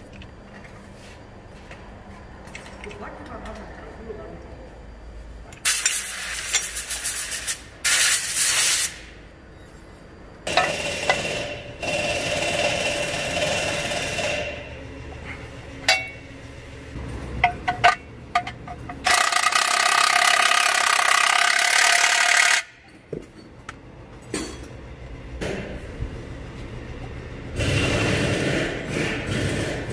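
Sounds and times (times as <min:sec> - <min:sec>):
steady loud noise: 0:10.4 - 0:22.8, 0:27.3 - 0:29.9
metal clanks: 0:17.4 - 0:19.3.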